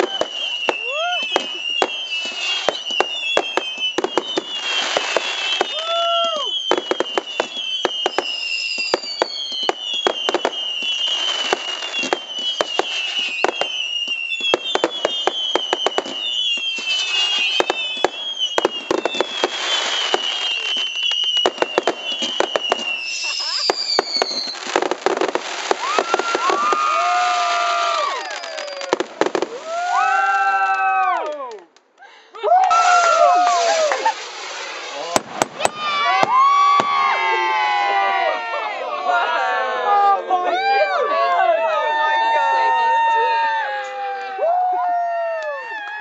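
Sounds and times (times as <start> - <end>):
firework whistles: 0.0 - 30.3, 32.7 - 37.3
firework bangs and crackle: 0.0 - 31.3, 32.5 - 38.8, 41.9 - 46.0.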